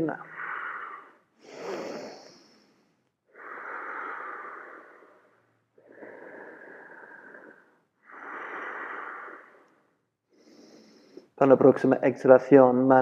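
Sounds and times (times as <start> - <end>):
person breathing slowly: 0.2 - 11.4.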